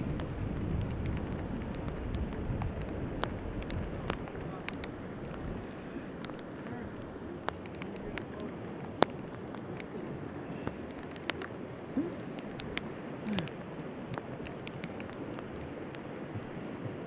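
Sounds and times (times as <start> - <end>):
sharp clicks and ticks: 0.2 - 5.4, 6.2 - 9.9, 10.8 - 11.5, 12.2 - 16.0.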